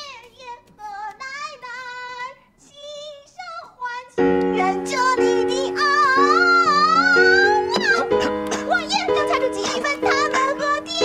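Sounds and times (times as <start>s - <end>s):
high child-like singing voice: 0.0s - 11.0s
held keyboard chords: 4.2s - 11.0s.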